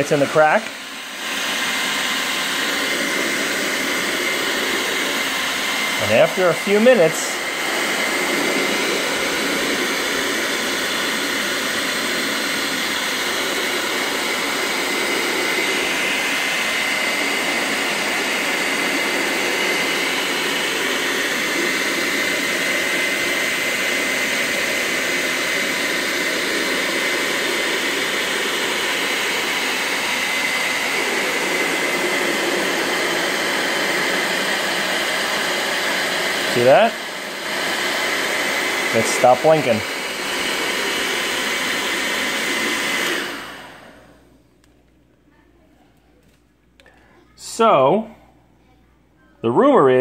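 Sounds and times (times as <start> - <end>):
thin steady whine: 0.0 - 22.4
hair dryer blowing air: 0.0 - 44.4, 46.8 - 48.1.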